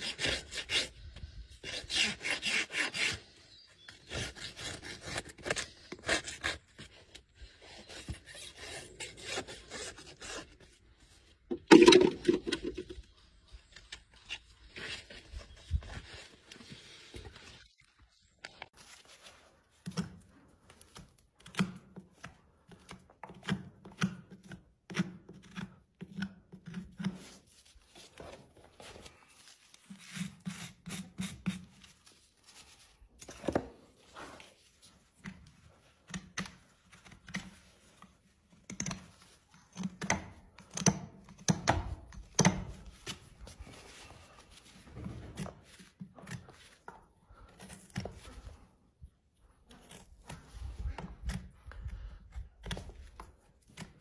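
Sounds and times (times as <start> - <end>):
tools cutting horse hoof: 0.0 - 10.6, 19.8 - 27.5, 35.2 - 43.4, 49.6 - 54.0.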